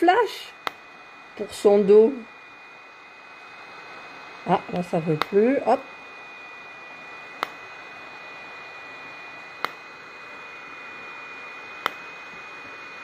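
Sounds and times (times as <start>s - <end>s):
cooling fan whine: 0.0s - 13.0s
hair removal device clicking: 0.6s - 0.9s, 4.6s - 5.4s, 7.3s - 7.7s, 9.6s - 9.9s, 11.8s - 12.4s.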